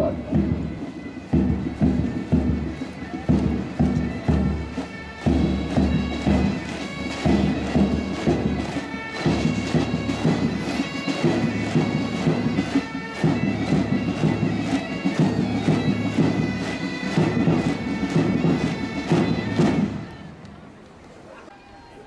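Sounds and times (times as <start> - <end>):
pipe band playing a march: 0.0 - 20.8.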